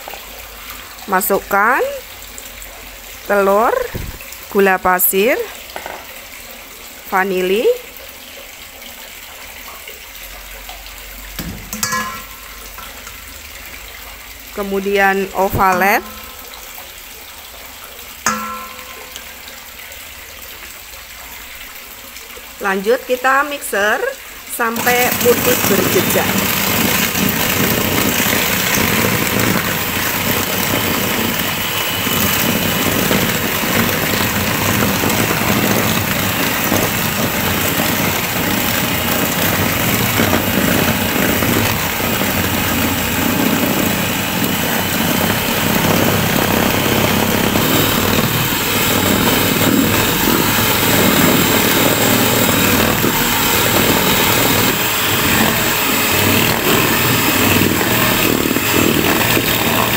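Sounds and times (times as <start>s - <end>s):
electric hand mixer whipping: 14.6s - 16.5s, 24.6s - 59.9s.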